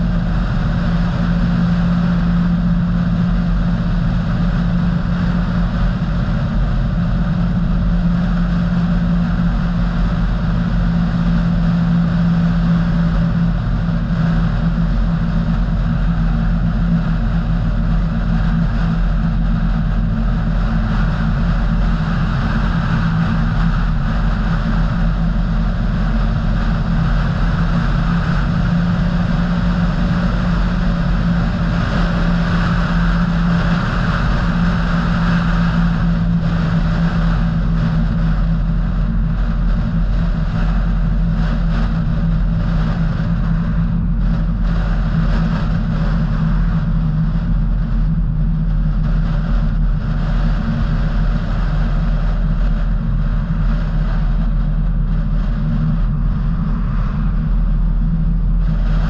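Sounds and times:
car engine and tyre drone: 0.0s - 59.0s.

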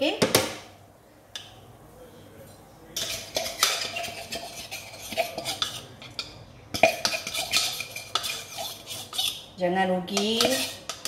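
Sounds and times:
spoon scraping and clinking dish: 2.9s - 9.5s, 10.1s - 11.0s.

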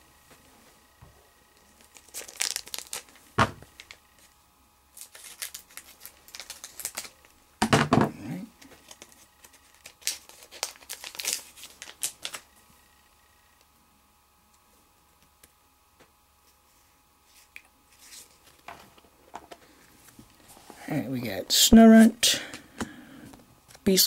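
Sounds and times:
foil wrapper crinkling and tearing: 1.7s - 4.3s, 4.9s - 7.4s, 8.6s - 12.5s.

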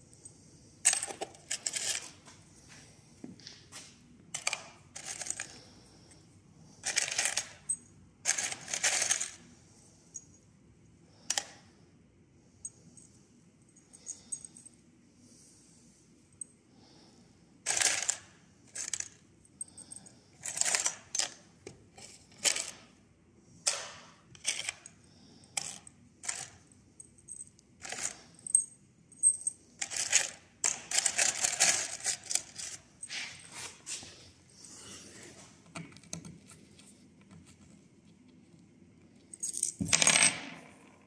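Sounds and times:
metal screws clinking in a box: 0.8s - 2.2s, 4.4s - 5.6s, 6.8s - 9.4s, 17.7s - 21.4s, 22.0s - 22.9s, 23.7s - 25.0s, 25.6s - 33.2s, 39.2s - 40.6s.

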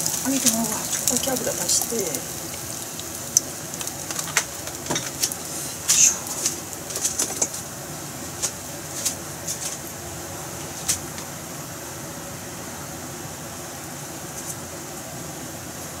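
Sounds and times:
oil crackling pops: 0.0s - 7.7s
food sizzling in hot oil: 0.0s - 10.0s.

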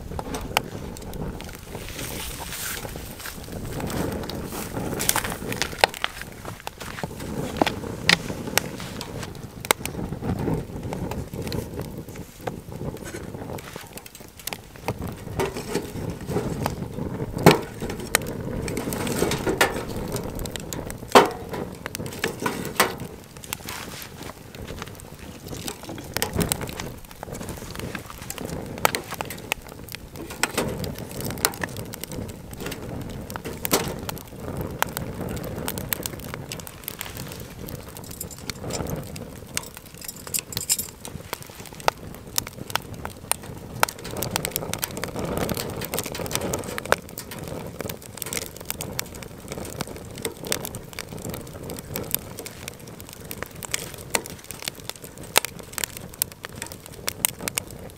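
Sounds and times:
low rustling noise: 0.0s - 55.9s
cooking gear knocks and clinks: 38.0s - 39.0s, 39.6s - 41.0s.

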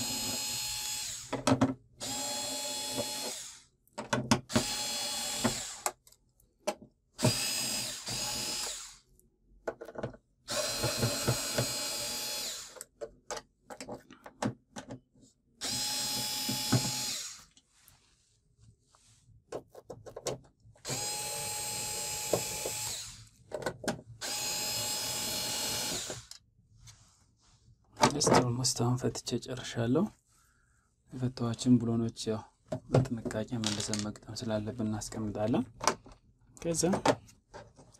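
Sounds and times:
cordless drill running: 0.0s - 1.4s, 2.0s - 3.7s, 4.5s - 6.0s, 7.2s - 9.0s, 10.5s - 12.9s, 15.6s - 17.5s, 20.8s - 23.3s, 24.2s - 26.4s.

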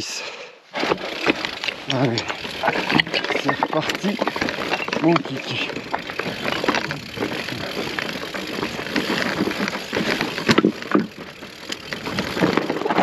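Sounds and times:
bike rattling: 0.7s - 13.0s
tyres crunching on stones: 0.8s - 13.0s.

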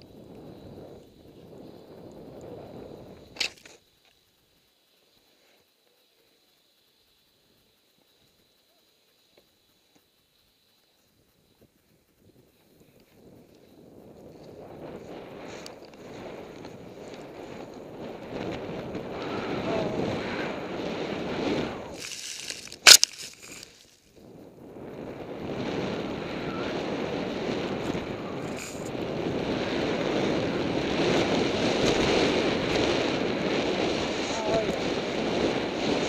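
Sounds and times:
wind rushing over microphone: 0.0s - 3.6s, 12.2s - 36.0s
skis hissing through snow: 12.5s - 24.3s, 25.5s - 36.0s.

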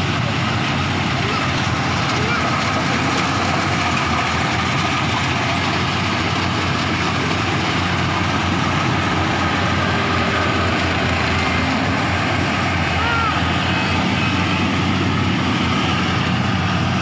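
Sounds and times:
combine harvester running: 0.0s - 17.0s.

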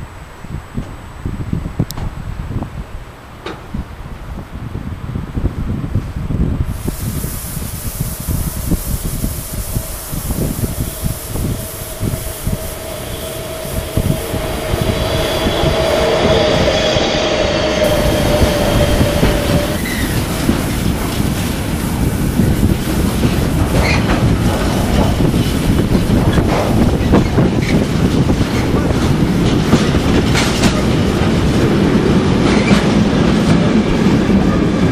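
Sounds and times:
freight train rumble: 0.0s - 34.9s
high wheel squeal: 9.6s - 20.8s, 23.7s - 24.2s
train wheels clacking over rail joints: 17.8s - 33.8s.

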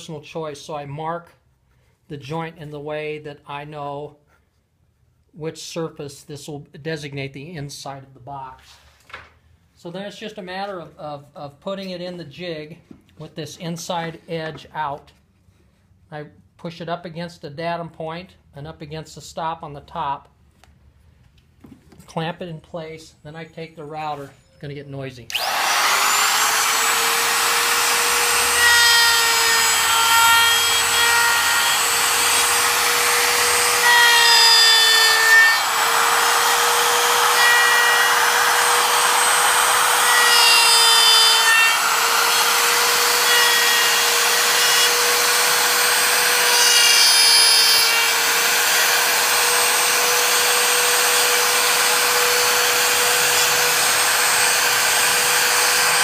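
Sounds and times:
electric router whine: 25.3s - 56.0s
router bit cutting wood: 25.3s - 56.0s.

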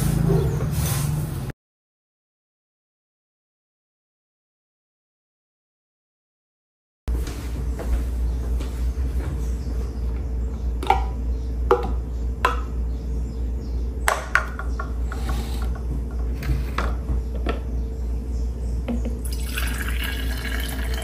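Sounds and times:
steady low hum: 7.1s - 21.0s.

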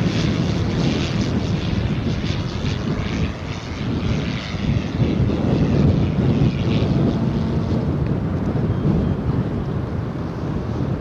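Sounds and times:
propeller whooshing: 0.0s - 11.0s
wind buffeting microphone: 0.0s - 11.0s.

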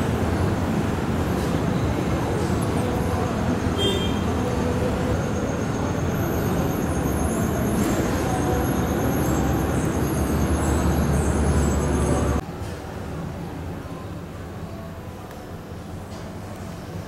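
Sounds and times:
train machinery idling rumble: 0.0s - 17.0s.

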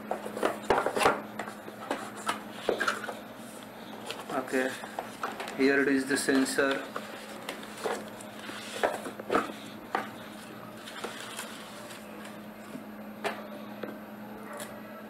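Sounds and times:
plastic wrapping crinkling: 0.2s - 12.4s.

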